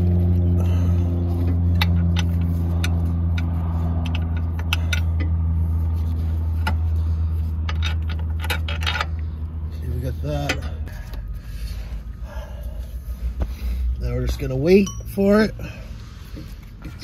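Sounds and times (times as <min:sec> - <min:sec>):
vehicle engine idling: 0:00.0 - 0:17.0
metal tools clinking: 0:14.3 - 0:15.7.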